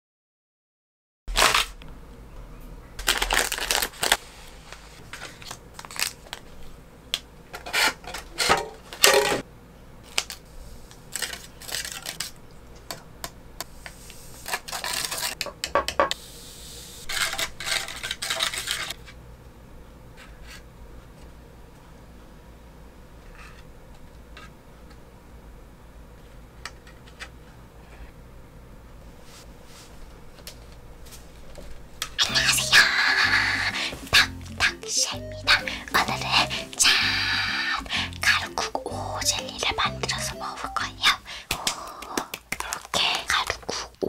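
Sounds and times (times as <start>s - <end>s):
plastic packaging crinkling: 1.3s - 1.8s, 3.0s - 6.6s, 11.1s - 12.4s, 14.4s - 15.4s, 17.1s - 19.0s
plastic spoons tapping and scraping: 42.0s - 43.9s.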